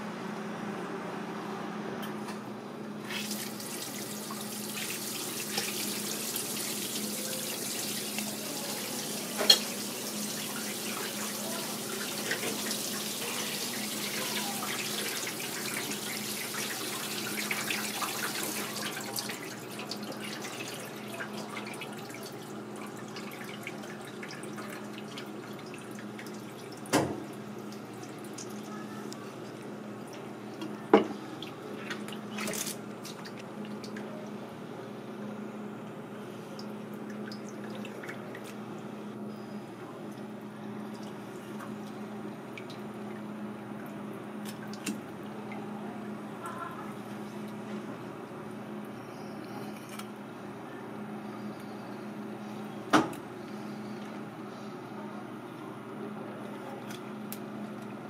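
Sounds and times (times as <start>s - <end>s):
tap water splashing: 3.1s - 7.0s, 9.3s - 9.8s, 10.4s - 13.0s, 13.8s - 28.6s, 43.8s - 45.6s.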